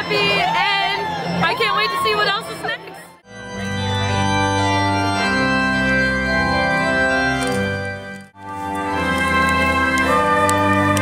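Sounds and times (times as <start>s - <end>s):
organ music with sustained chords: 3.2s - 11.0s.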